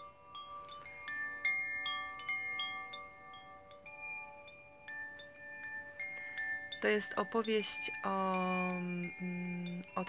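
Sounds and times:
metal chimes tinkling: 0.0s - 10.0s.

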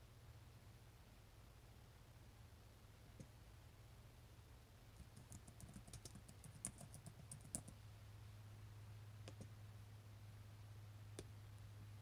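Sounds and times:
low steady hum: 0.0s - 12.0s
typing on computer keyboard: 5.0s - 7.8s.

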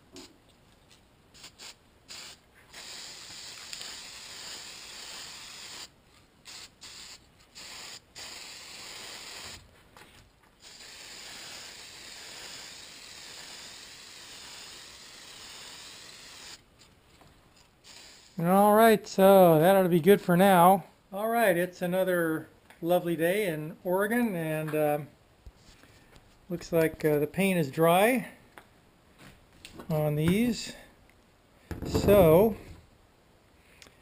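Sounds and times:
spray paint can hissing: 1.3s - 9.7s, 10.6s - 16.6s, 17.8s - 18.4s.

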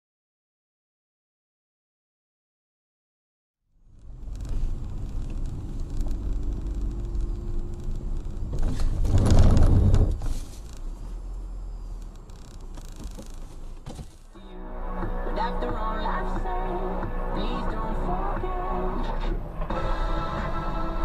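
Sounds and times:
car engine and road rumble: 3.7s - 21.0s.

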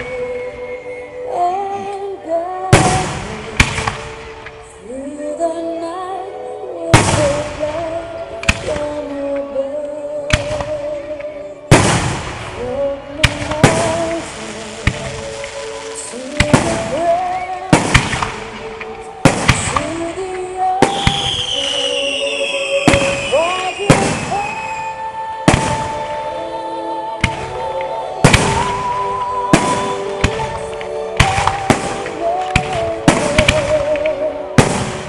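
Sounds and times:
background music: 0.0s - 35.0s
fireworks bursting with sharp bangs: 2.7s - 4.8s, 6.9s - 9.4s, 10.3s - 26.5s, 27.2s - 35.0s
high whistling tone: 20.8s - 25.2s.

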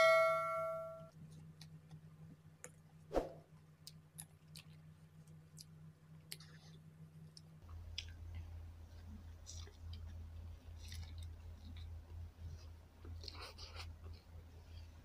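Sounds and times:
bell-like chime: 0.0s - 1.1s.

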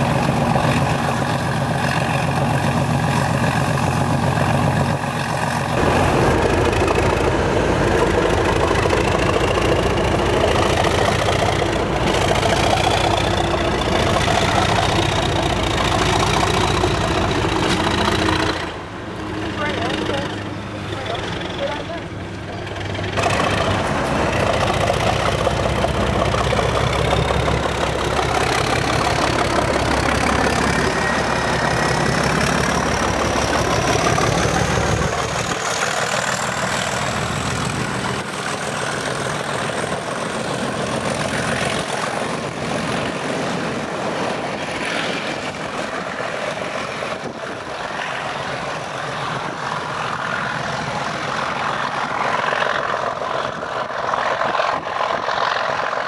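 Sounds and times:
coaches rolling past: 0.0s - 53.7s
diesel locomotive engine: 0.0s - 56.0s
thin rising whine: 5.4s - 18.7s.

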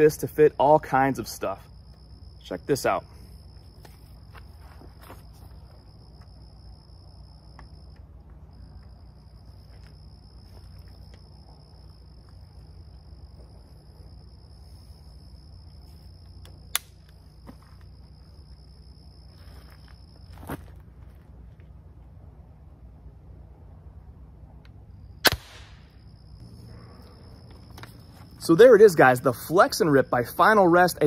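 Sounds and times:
insects droning: 0.0s - 31.0s
low background hum: 0.0s - 31.0s
sharp click of crossbow: 16.7s - 17.0s, 25.2s - 25.9s.

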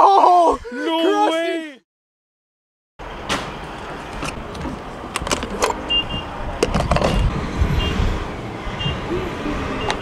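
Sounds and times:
gas pump double beeps: 5.9s - 6.3s, 7.1s - 8.0s, 8.8s - 9.0s, 9.8s - 10.0s.

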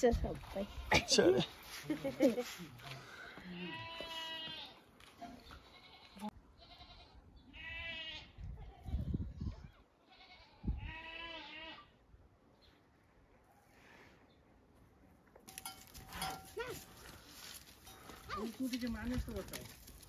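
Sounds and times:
goat bleating: 3.4s - 4.8s, 5.5s - 9.0s, 10.0s - 11.9s.

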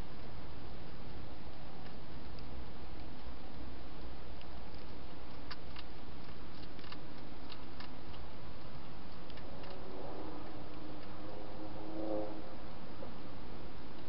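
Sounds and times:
background hiss: 0.0s - 14.0s
hedgehog crunching food: 0.1s - 11.3s.

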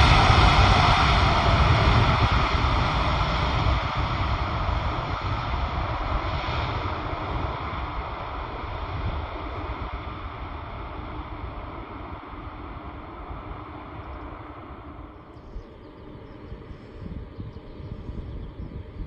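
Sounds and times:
jet engines rushing: 0.0s - 19.0s
wind buffeting microphone: 0.0s - 19.0s.

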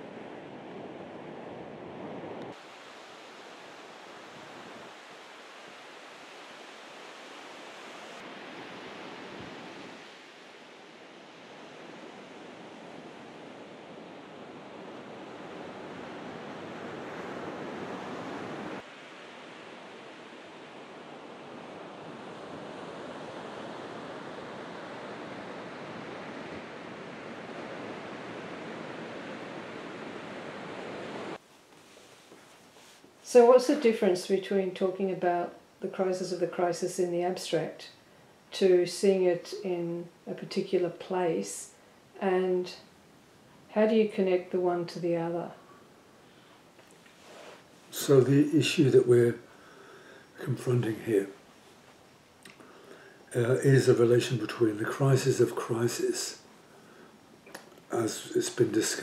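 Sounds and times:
waves breaking on a beach: 0.0s - 31.4s
wind: 0.0s - 36.2s, 37.1s - 58.6s.

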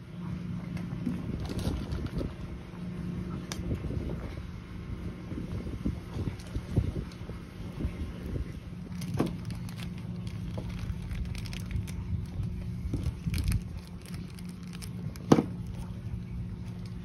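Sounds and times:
steady low hum: 0.0s - 17.0s
plastic bag crinkling: 1.4s - 2.3s, 8.7s - 16.0s.

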